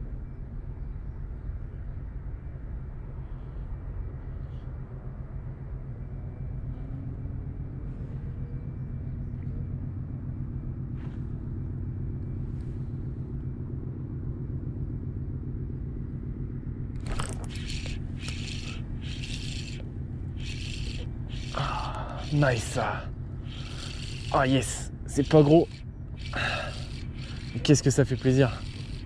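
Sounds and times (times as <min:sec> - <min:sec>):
steady low rumble: 0:00.0 - 0:29.0
fishing reel cranking: 0:17.0 - 0:29.0.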